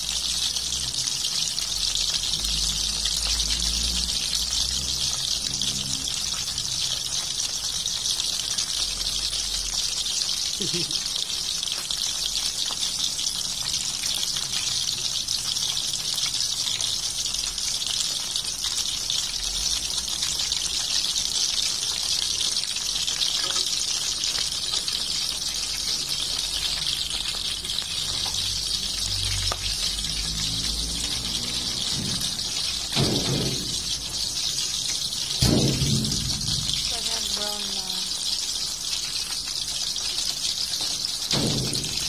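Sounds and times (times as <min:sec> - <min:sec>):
fish sizzling in hot oil: 0:00.0 - 0:42.0
low rumble: 0:35.4 - 0:37.2.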